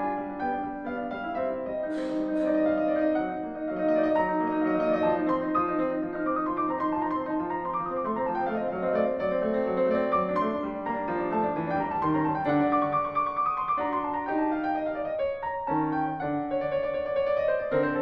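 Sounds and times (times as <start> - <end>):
classical piano music: 0.0 - 18.0.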